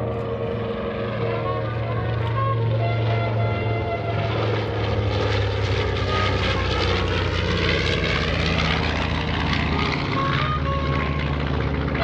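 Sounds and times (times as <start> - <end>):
propeller plane engines droning: 0.0 - 12.0.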